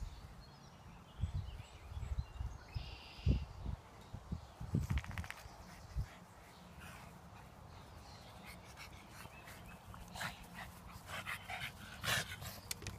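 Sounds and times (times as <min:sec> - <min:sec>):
dogs breathy noises: 0:05.6 - 0:12.9.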